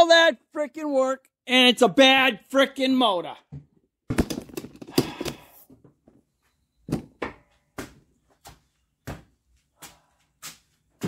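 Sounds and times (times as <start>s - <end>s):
footsteps of person walking: 7.2s - 11.0s.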